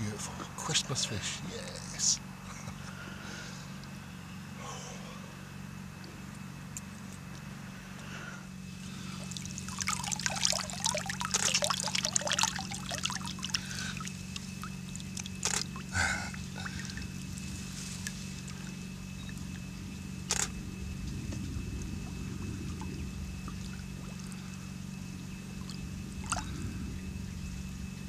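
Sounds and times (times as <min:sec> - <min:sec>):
steady low hum: 0:00.0 - 0:28.0
water splashing and trickling: 0:08.9 - 0:19.7, 0:21.3 - 0:27.2.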